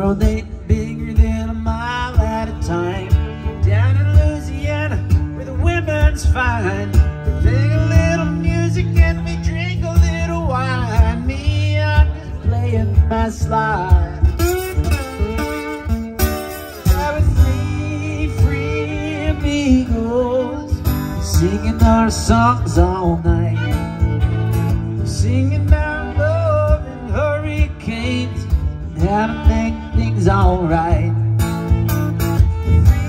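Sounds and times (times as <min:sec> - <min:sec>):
acoustic guitar strumming: 0:00.0 - 0:33.0
fiddle playing sliding melody: 0:14.1 - 0:33.0.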